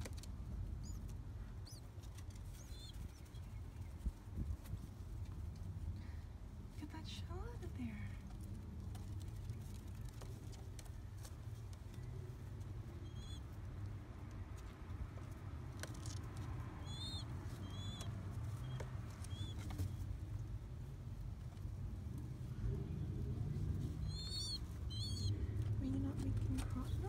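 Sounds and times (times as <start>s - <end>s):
steady low hum: 0.0s - 27.0s
chick peeping: 0.8s - 4.1s, 12.8s - 13.9s, 16.8s - 20.1s, 23.9s - 27.0s.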